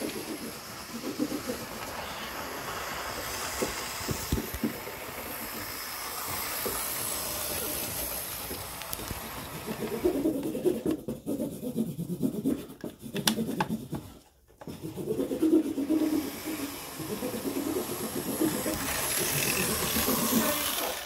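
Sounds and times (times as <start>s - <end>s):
model train rumbling on rails: 0.0s - 10.4s, 15.8s - 21.0s.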